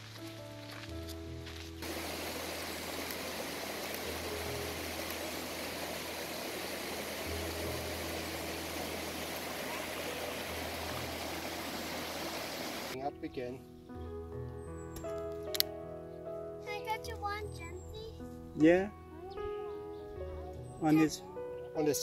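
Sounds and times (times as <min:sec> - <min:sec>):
creek rushing over rocks: 0:01.8 - 0:13.0.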